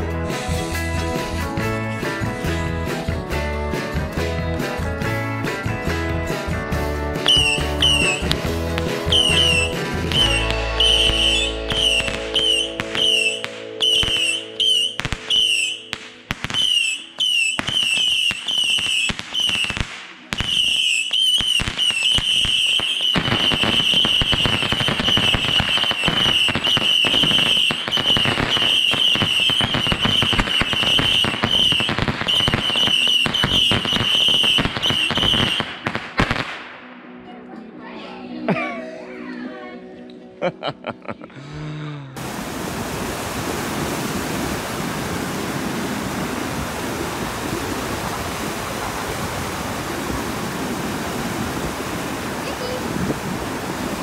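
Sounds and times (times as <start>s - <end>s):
firework whistling: 7.2s - 36.4s
firework crackling: 7.2s - 36.8s.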